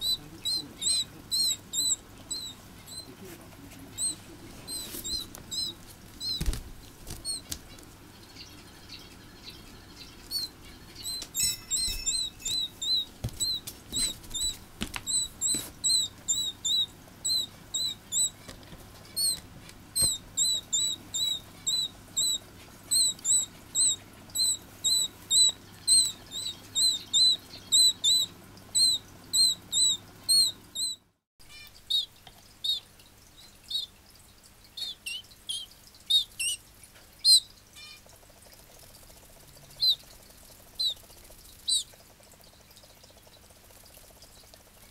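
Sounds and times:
chick peeping: 0.0 - 7.8, 8.4 - 19.4, 20.0 - 32.9, 40.8 - 41.0, 41.6 - 41.9
wing flutters: 2.8 - 8.0.

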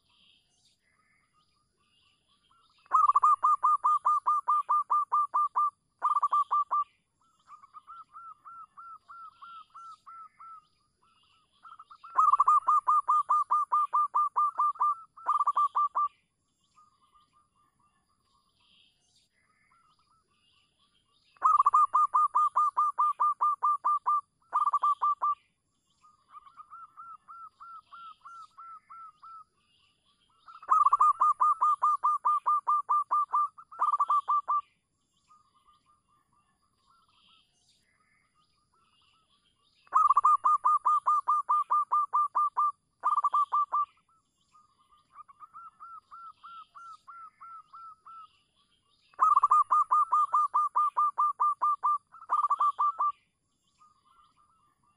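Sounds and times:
dove cooing: 2.9 - 6.8, 11.7 - 16.1, 21.4 - 25.4, 30.6 - 34.6, 39.9 - 43.8, 49.2 - 53.1.

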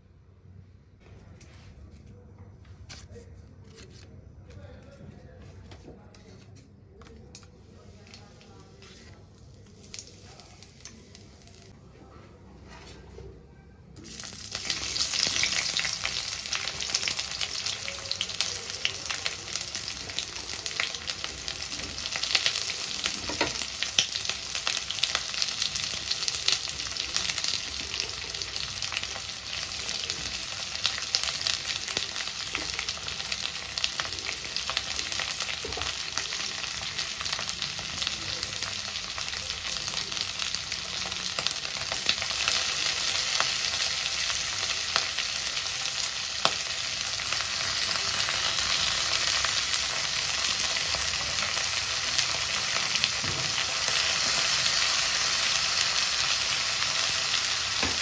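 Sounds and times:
onions sizzling in hot oil: 9.6 - 11.7, 14.0 - 58.0.

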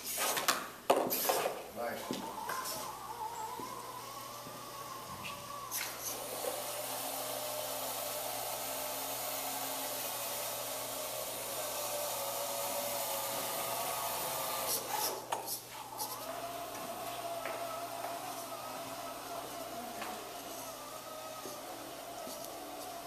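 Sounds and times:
gear motors whirring: 2.1 - 23.0.

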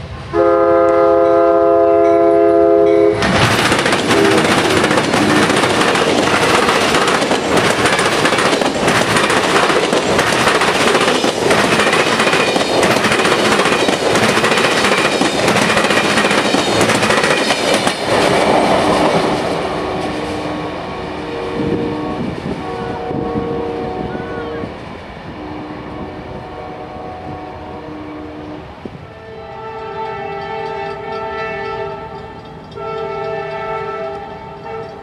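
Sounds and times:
distant locomotive air horn: 0.2 - 3.2, 4.1 - 5.6, 19.6 - 35.0
train wheels clattering over rails: 3.2 - 20.5.

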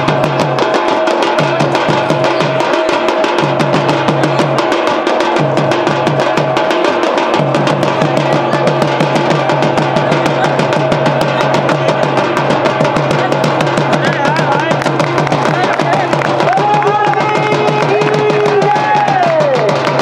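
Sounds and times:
fast drumbeats: 0.0 - 20.0.

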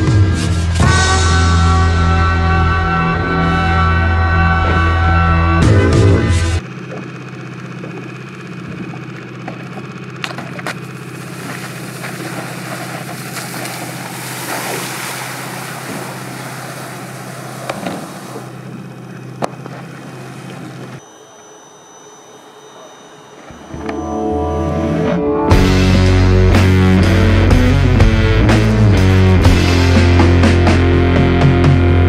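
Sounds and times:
motor humming: 3.1 - 28.4
water spray hissing: 10.8 - 18.9
faint high whine: 11.3 - 25.4.

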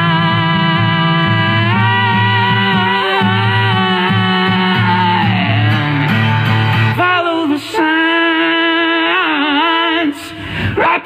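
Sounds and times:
person singing long notes: 0.0 - 6.3
guitar: 0.0 - 10.8.

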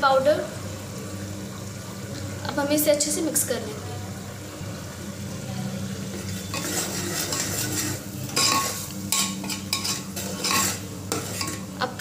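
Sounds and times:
food sizzling in oil: 0.0 - 12.0
metal ladle scraping a pot: 6.1 - 11.7.

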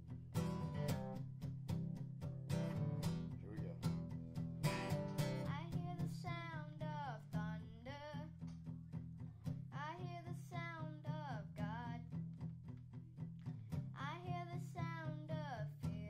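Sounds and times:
acoustic guitar strumming: 0.0 - 16.0
young boy singing: 5.4 - 8.4, 9.7 - 12.1, 14.0 - 16.0.

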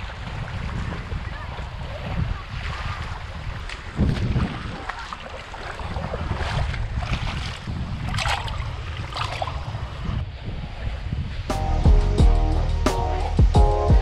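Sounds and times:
waves washing over pebbles: 0.0 - 10.2
rushes of water: 0.0 - 11.5
wind on microphone: 0.0 - 14.0.

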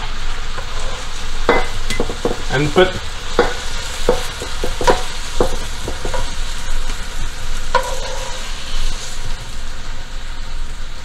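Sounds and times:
oil sizzling: 0.0 - 11.0
utensil scraping and knocking pan: 0.6 - 6.4, 7.8 - 8.5.

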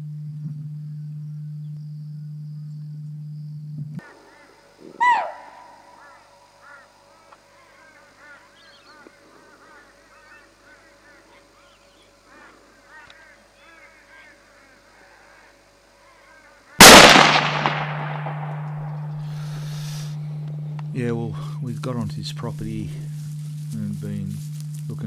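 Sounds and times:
steady low hum: 0.0 - 5.0, 16.8 - 25.0
flock of birds calling: 4.2 - 17.0, 18.6 - 20.7
loud falling bird call: 5.0 - 6.9, 16.8 - 20.8.

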